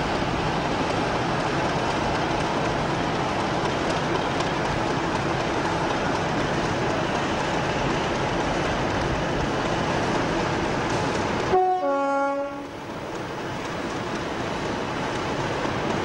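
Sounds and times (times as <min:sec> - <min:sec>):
diesel locomotive running: 0:00.0 - 0:16.0
two-tone locomotive horn: 0:11.5 - 0:12.8.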